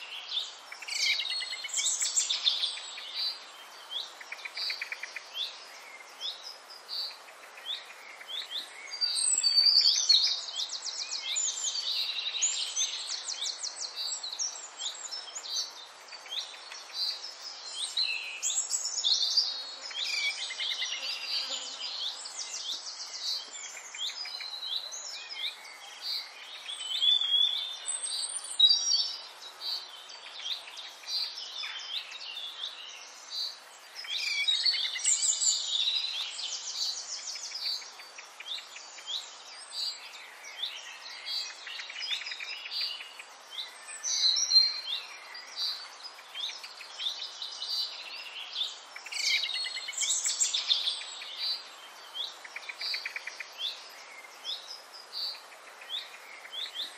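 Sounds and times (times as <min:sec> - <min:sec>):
faint steady hiss: 0:00.0 - 0:56.9
small birds chirping: 0:00.0 - 0:56.9.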